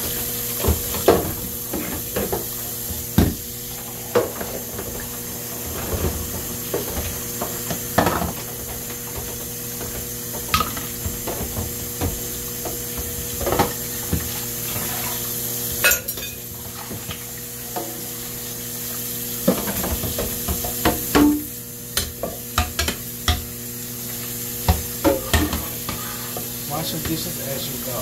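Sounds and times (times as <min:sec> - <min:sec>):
pan scrubbed in soapy water: 0:13.7 - 0:15.8, 0:25.2 - 0:28.0
dishes clinking and knocking: 0:24.7 - 0:26.0.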